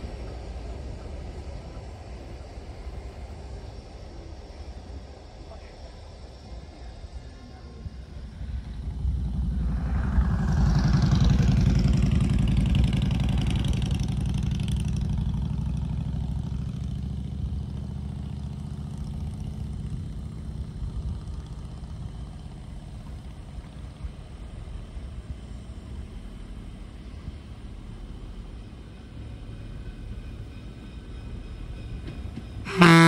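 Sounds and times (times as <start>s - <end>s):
vehicle engine passing by: 8.4s - 22.6s.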